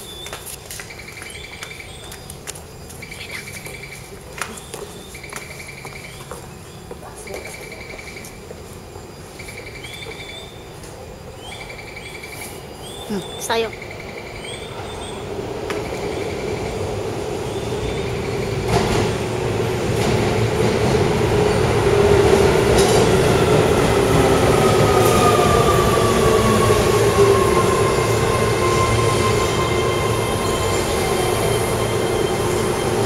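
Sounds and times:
electric train rumble: 0:13.6 - 0:33.0.

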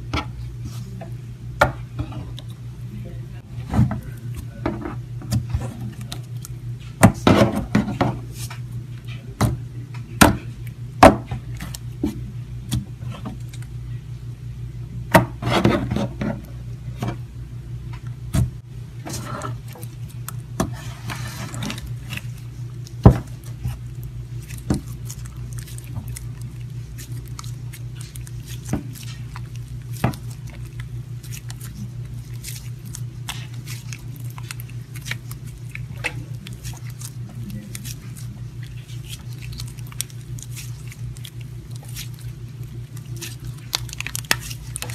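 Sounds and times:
steady low hum: 0:00.0 - 0:44.9
slime clicking and squishing: 0:05.3 - 0:06.9, 0:10.4 - 0:13.7, 0:19.6 - 0:20.8, 0:21.6 - 0:44.9.

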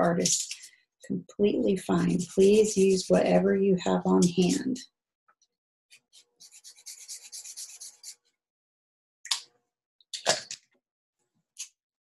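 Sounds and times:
marker scribbling on paper: 0:02.1 - 0:03.3, 0:06.1 - 0:08.2.

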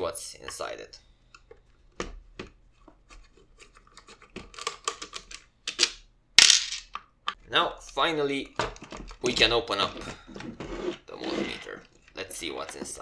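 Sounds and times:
plastic scrape: 0:08.7 - 0:13.0.

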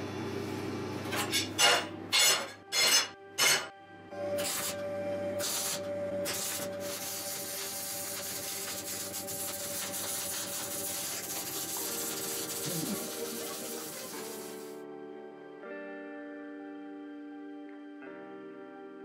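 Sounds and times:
welder arc crackling: 0:05.4 - 0:14.8.

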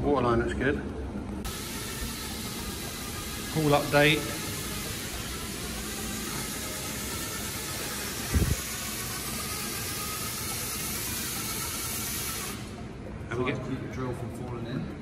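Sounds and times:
drill spinning scrub brush: 0:01.5 - 0:12.8.

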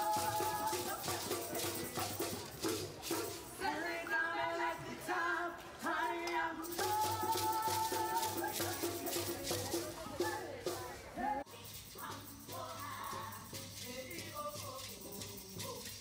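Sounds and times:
hand drums beating: 0:00.0 - 0:03.5, 0:06.7 - 0:11.0
voices singing: 0:00.0 - 0:16.0.

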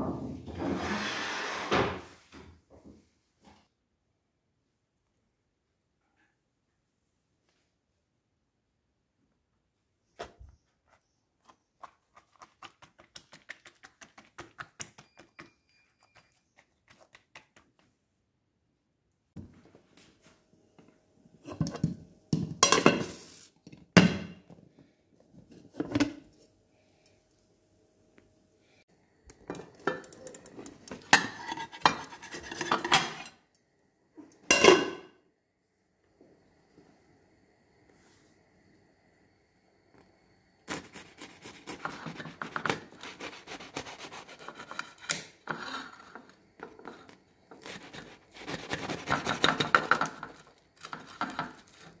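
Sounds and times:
metal pan and plate clattering: 0:22.5 - 0:23.3, 0:29.5 - 0:33.4, 0:34.4 - 0:35.1.

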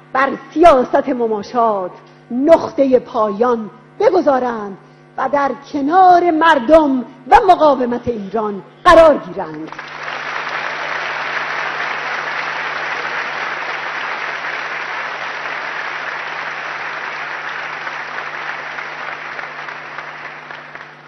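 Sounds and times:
large audience applauding: 0:09.7 - 0:21.0.

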